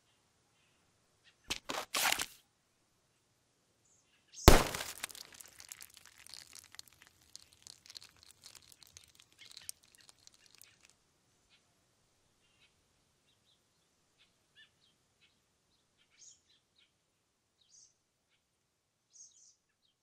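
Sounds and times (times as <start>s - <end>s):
debris crackling and tinkling: 4.5s - 10.9s.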